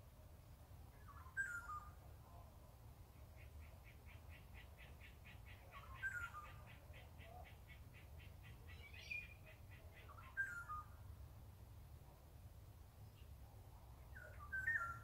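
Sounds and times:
woodland birds calling: 1.0 - 1.9, 3.4 - 10.9, 14.1 - 15.0.

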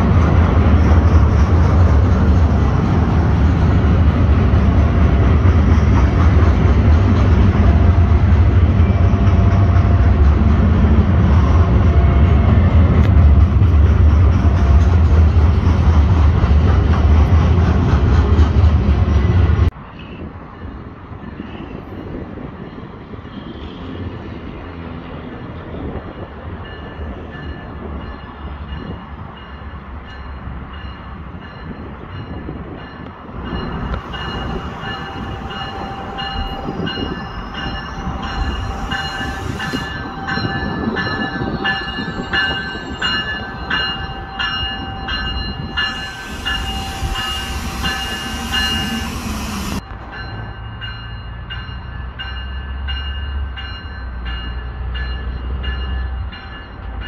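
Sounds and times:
diesel train rumble: 0.0 - 57.0
train bell ringing: 20.5 - 23.7, 26.6 - 57.0
high air hiss: 38.2 - 40.2, 45.8 - 49.8.

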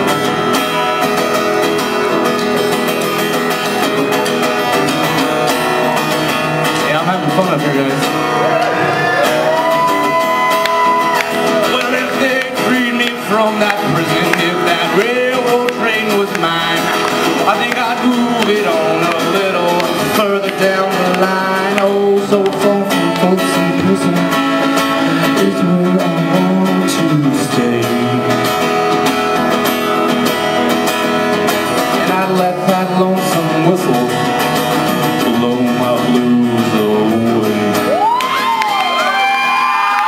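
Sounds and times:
acoustic guitar strumming: 0.0 - 39.8
audience whooping: 8.4 - 12.6, 37.8 - 40.0
man singing into microphone: 11.5 - 28.6, 31.9 - 38.0.

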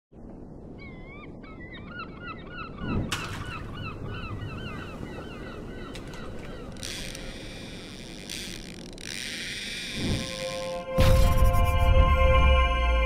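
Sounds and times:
seagulls calling: 0.8 - 10.8.

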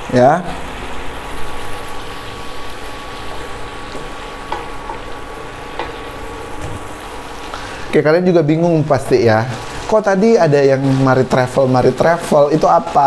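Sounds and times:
sauce sizzling in a frying pan: 0.0 - 13.0
spatula knocking against pan: 4.5 - 5.1, 5.8 - 6.0.

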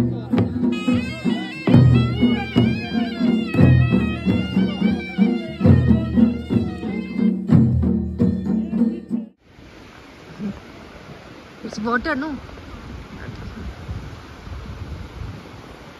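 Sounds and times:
heavy drum strikes: 0.0 - 9.4
piercing wind instrument melody: 0.0 - 9.4.

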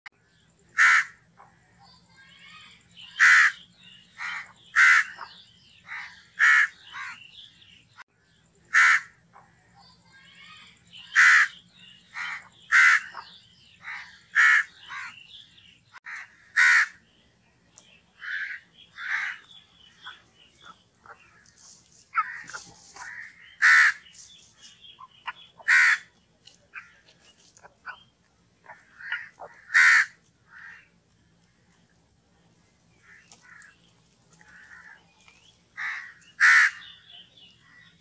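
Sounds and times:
crow cawing: 0.8 - 1.2, 3.2 - 3.6, 4.2 - 5.3, 5.9 - 7.2, 8.7 - 9.2, 11.1 - 11.6, 12.2 - 15.2, 16.0 - 17.0, 18.2 - 20.2, 22.2 - 24.0, 25.6 - 26.1, 28.7 - 30.9, 35.8 - 36.9.

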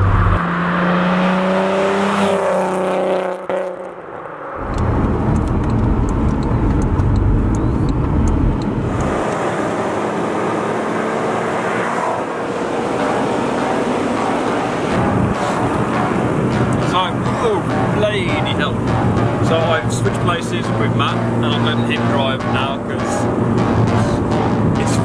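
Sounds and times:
car engine revving: 0.0 - 25.0
sharp ticks: 4.6 - 9.8, 15.6 - 25.0.

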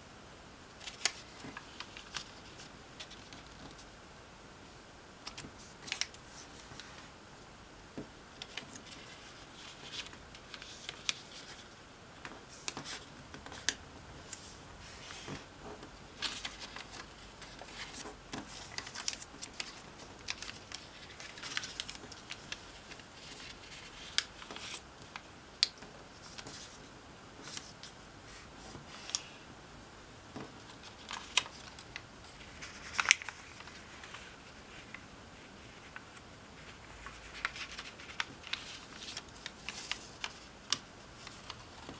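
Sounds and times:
paper rustling and snapping: 0.8 - 3.8, 5.2 - 6.9, 16.2 - 26.8, 30.4 - 35.0, 35.9 - 41.9.

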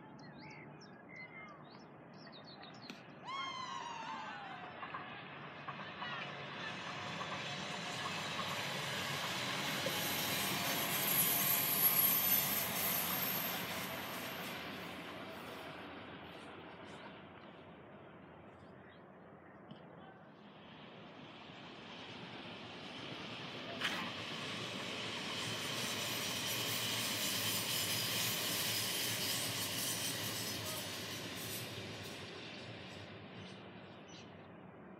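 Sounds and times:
train wheels on rails: 4.7 - 18.2, 20.5 - 34.4.

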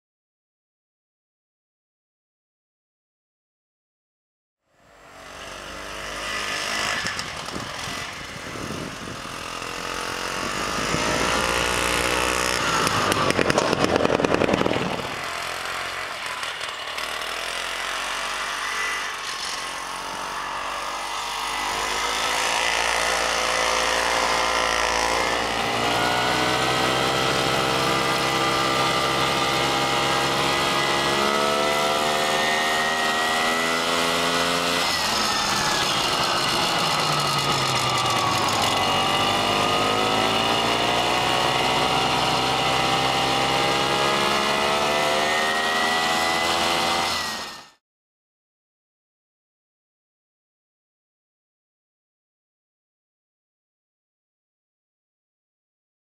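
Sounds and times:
snowmobile engine revving: 4.9 - 47.8.

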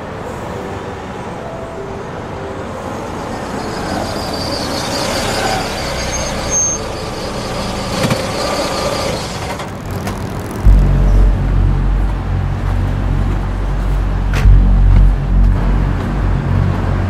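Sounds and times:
van engine and tyres: 0.0 - 17.0
brief high squeak: 3.2 - 9.8
loud low boom: 10.6 - 17.0.

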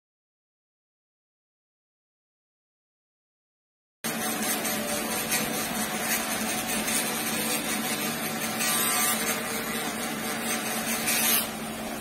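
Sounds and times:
electric shaver buzzing: 4.1 - 12.0.

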